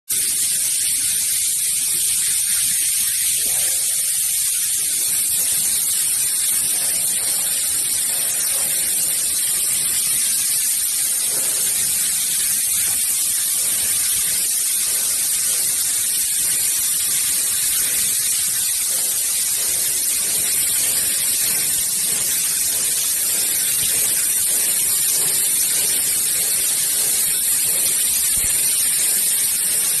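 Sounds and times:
plasma torch hissing: 0:01.5 - 0:30.0.

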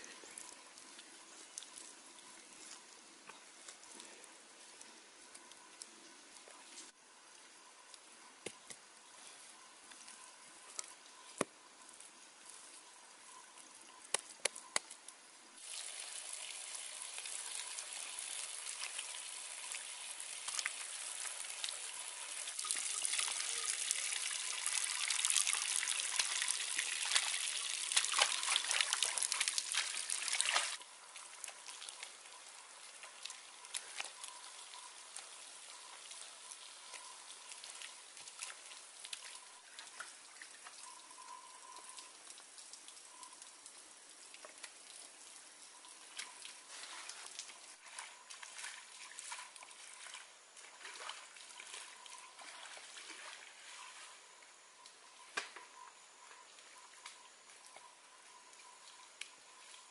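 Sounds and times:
water trickling and pouring: 0:15.6 - 0:54.5.

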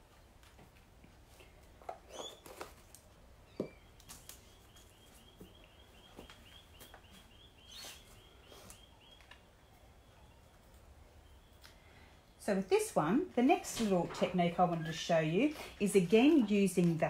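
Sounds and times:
faint high chirping: 0:03.4 - 0:12.4.

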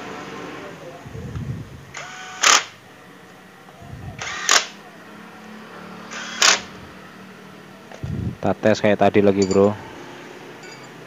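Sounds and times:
impact wrench hammering: 0:06.1 - 0:06.8, 0:09.4 - 0:09.8.

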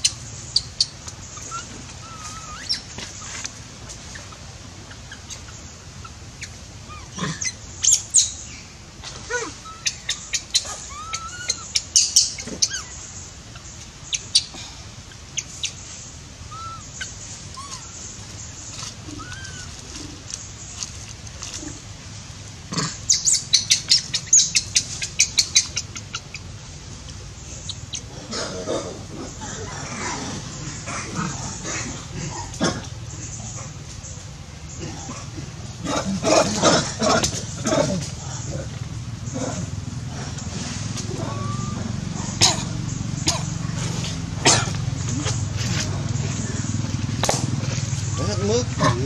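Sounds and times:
animal chirps and squeaks: 0:00.0 - 0:03.4, 0:04.1 - 0:08.6, 0:09.2 - 0:14.5, 0:16.5 - 0:20.9, 0:23.1 - 0:26.5, 0:41.0 - 0:42.4.

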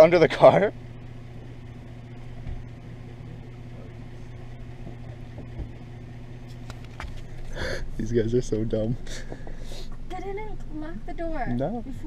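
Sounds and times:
car idling: 0:00.0 - 0:12.0.

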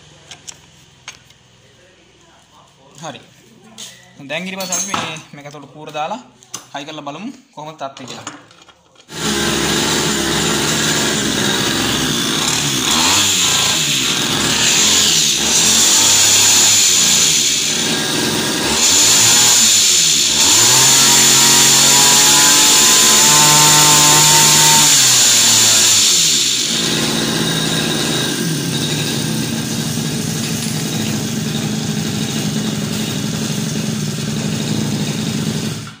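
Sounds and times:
small engine idling: 0:09.1 - 0:36.0
two-stroke engine revving: 0:09.1 - 0:36.0.

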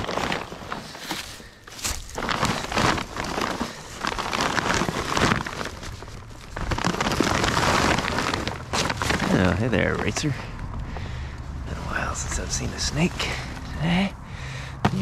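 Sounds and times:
plastic sheeting crinkling: 0:00.0 - 0:10.4.

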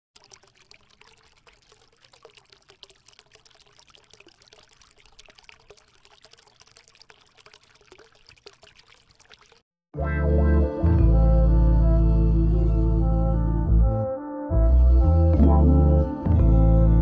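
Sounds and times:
fountain water trickling and splashing: 0:00.2 - 0:09.6.

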